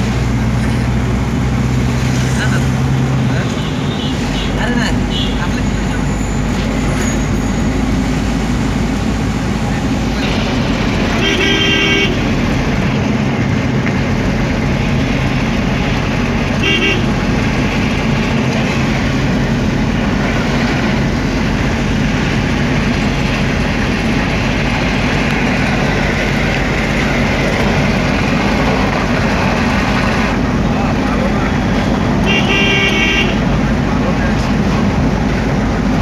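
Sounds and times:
car engine and road rumble: 0.0s - 36.0s
car horn toot: 11.1s - 12.2s, 16.6s - 17.1s, 32.2s - 33.4s.

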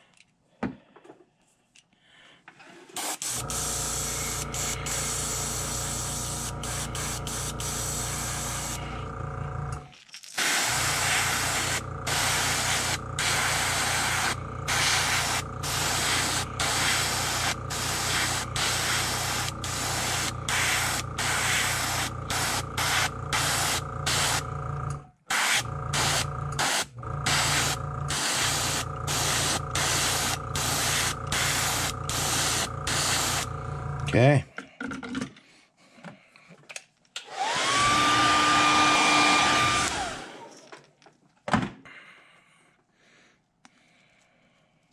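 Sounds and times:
airbrush spraying hiss: 3.0s - 9.0s, 10.4s - 24.4s, 25.3s - 33.5s
steady low hum: 3.3s - 9.9s, 10.5s - 34.2s.

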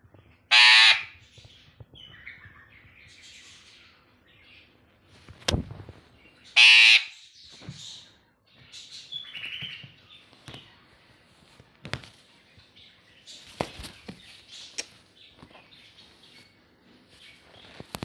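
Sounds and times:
parrot chattering calls: 0.5s - 1.2s, 6.5s - 7.3s
parrot squawking harshly: 0.5s - 1.2s, 6.6s - 7.2s.

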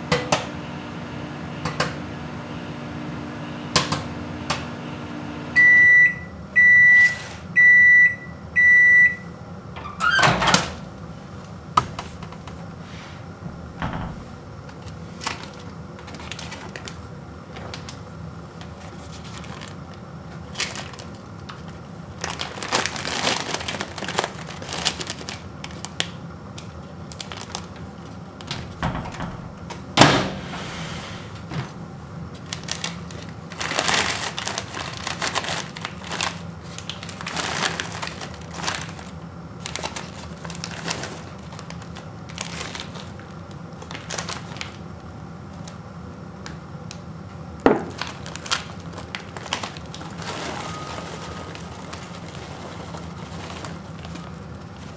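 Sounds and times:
paper bag crinkling: 14.3s - 18.0s, 18.6s - 28.5s, 32.3s - 44.8s, 47.8s - 54.9s.

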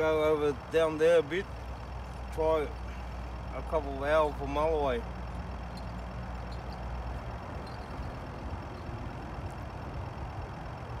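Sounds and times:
steady low rumble: 0.0s - 11.0s.

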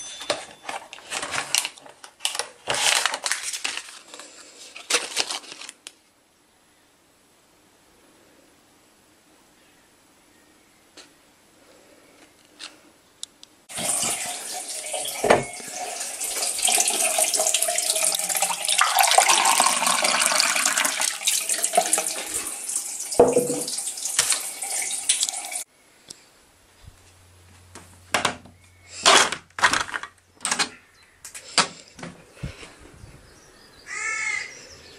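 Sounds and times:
tap water running into glass: 13.7s - 25.6s.

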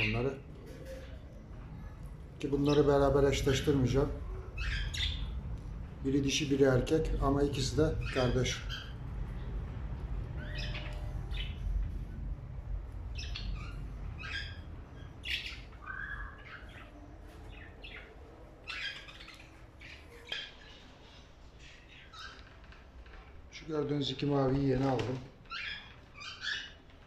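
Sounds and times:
birds chirping and squawking: 0.0s - 27.0s
low steady rumble: 0.4s - 21.6s.

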